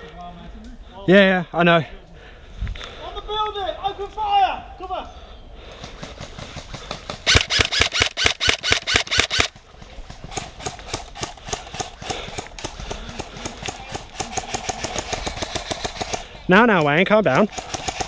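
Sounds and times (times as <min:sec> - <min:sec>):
faint rapid airsoft fire: 0:05.9 - 0:16.3, 0:17.3 - 0:18.0
rapid airsoft gun shots: 0:05.9 - 0:18.0.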